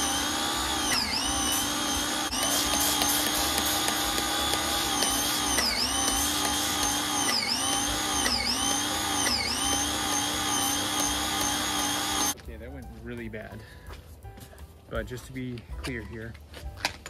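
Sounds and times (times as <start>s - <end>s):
pressure washer motor whine: 0.0s - 12.4s.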